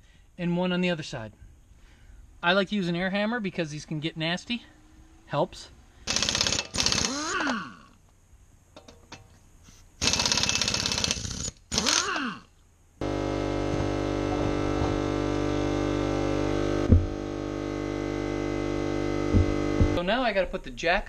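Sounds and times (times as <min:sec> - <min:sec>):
pneumatic impact wrench rattling: 0:06.0 - 0:07.6, 0:10.0 - 0:12.2
impact wrench spinning freely: 0:06.1 - 0:07.5, 0:10.0 - 0:12.1.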